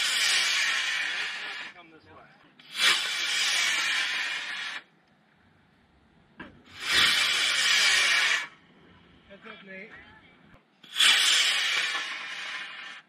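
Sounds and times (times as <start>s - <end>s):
rocket motor hissing: 0.0s - 1.8s, 2.6s - 4.9s, 6.7s - 8.6s, 10.8s - 13.0s.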